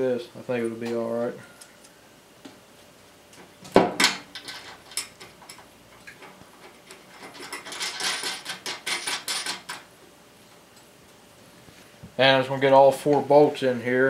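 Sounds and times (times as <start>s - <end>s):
bolts and nuts clinking on metal: 3.9s - 9.9s.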